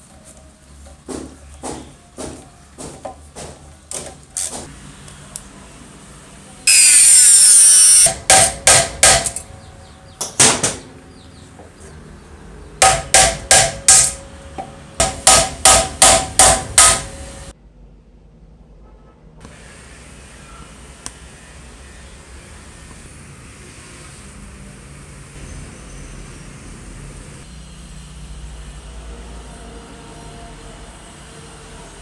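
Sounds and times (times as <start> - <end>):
hammer tapping on metal: 8.1 - 9.5, 12.8 - 17.2.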